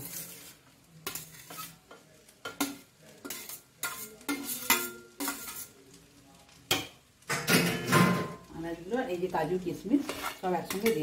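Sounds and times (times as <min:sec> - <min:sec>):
metal spoon scraping steel bowl: 0:00.0 - 0:01.8, 0:03.3 - 0:05.7, 0:10.0 - 0:11.0
faint sizzle: 0:00.0 - 0:11.0.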